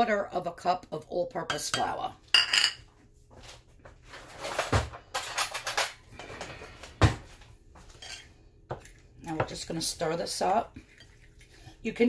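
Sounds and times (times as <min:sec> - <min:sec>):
ceramic bowl clinking on stone: 0:01.7 - 0:02.8
dishes being moved: 0:01.8 - 0:02.9, 0:04.2 - 0:06.8, 0:07.8 - 0:08.3.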